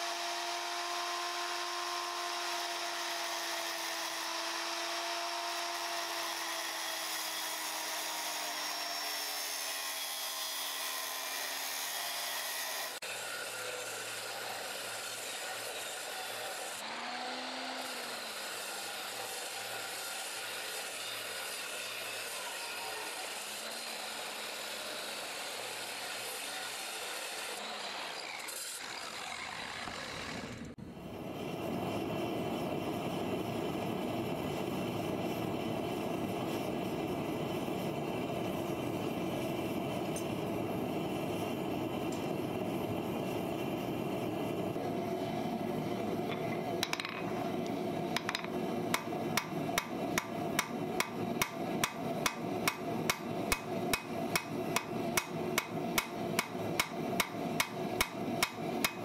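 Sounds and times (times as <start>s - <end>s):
angle grinder cutting steel: 0.0s - 30.8s, 44.5s - 59.0s
forge burner roaring: 28.9s - 59.0s
hammer striking on anvil: 48.2s - 59.0s.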